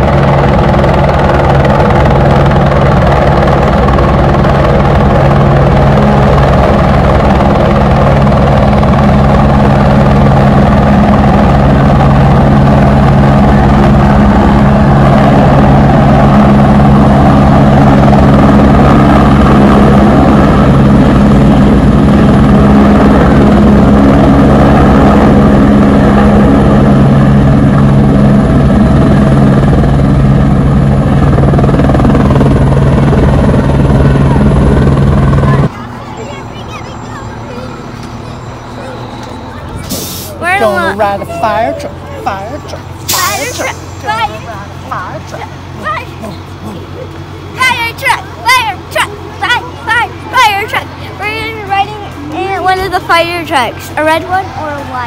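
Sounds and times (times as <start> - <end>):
turbine rush: 0.0 - 35.8, 37.4 - 55.0
helicopter rotor: 0.0 - 55.0.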